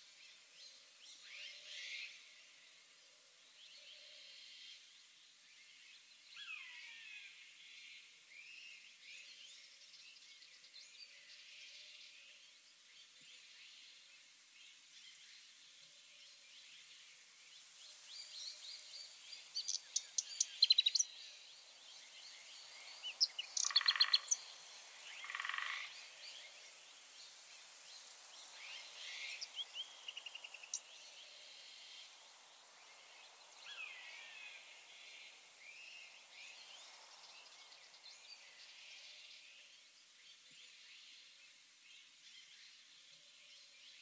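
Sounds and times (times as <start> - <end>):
faint steady hiss: 0.0 - 44.0
animal chirps and trills: 23.4 - 24.4.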